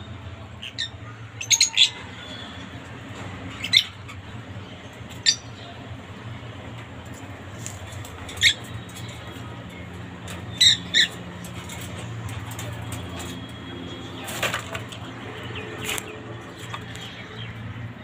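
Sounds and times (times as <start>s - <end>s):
parakeet squawking: 3.5s - 4.2s, 8.3s - 8.7s, 10.5s - 11.2s.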